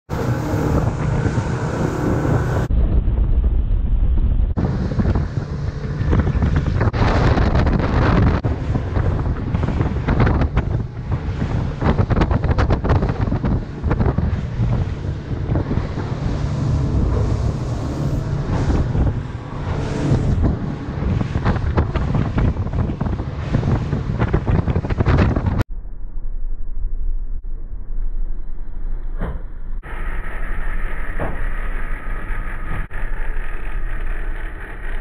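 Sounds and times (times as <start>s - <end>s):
boat engine: 0.1s - 2.7s, 4.6s - 25.6s, 27.5s - 35.0s
wind buffeting microphone: 0.1s - 25.7s.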